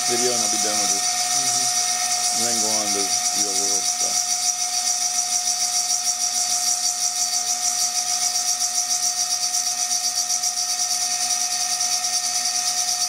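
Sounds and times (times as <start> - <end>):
cutter engraving glass: 0.0 - 13.0
milling spindle whining: 0.0 - 13.0.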